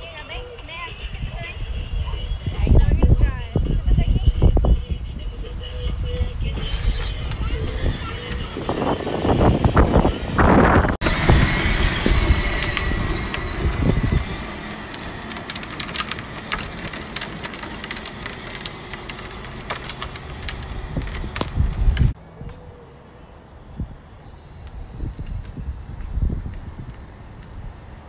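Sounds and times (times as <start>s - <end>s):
plastic wheels rumbling on asphalt: 0.0s - 22.2s.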